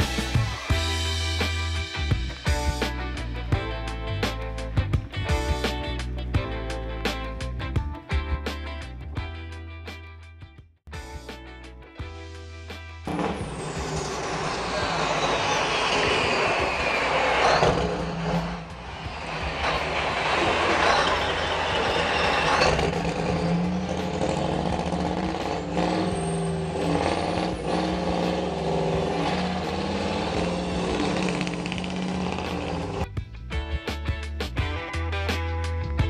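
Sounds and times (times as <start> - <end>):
tyres squealing on pavement: 13.1 - 33.0
truck engine revving hard: 13.1 - 33.1.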